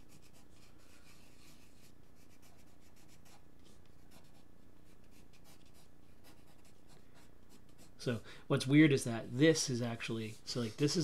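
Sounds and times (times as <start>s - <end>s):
pencil scratching on paper: 0.0s - 8.0s.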